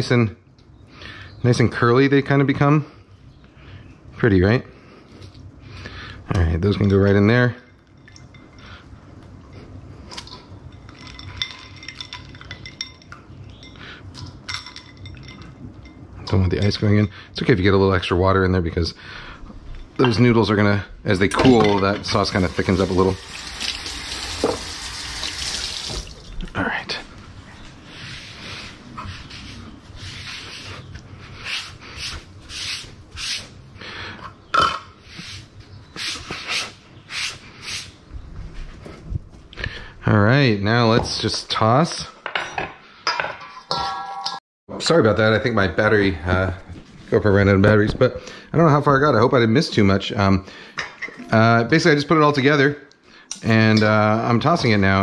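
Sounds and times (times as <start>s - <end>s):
ice cubes clinking in bowl: 10.7s - 13.1s
sponge scrubbing a cutting board: 27.9s - 30.8s.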